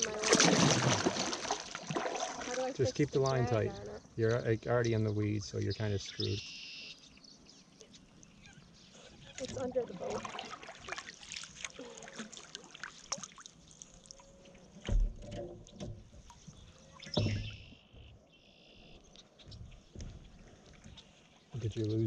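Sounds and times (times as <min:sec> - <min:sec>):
water splashing and dripping: 0:00.0 - 0:03.5, 0:09.2 - 0:17.6.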